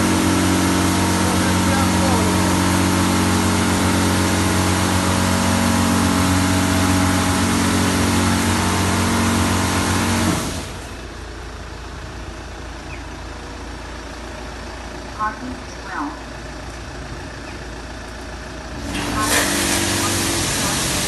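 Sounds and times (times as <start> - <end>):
motor hum: 0.0 - 21.0
high-pressure water spray hiss: 18.8 - 21.0.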